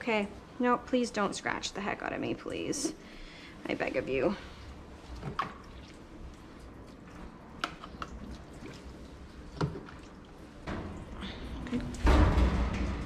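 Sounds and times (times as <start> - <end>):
soapy water sloshing in tub: 3.8 - 12.0.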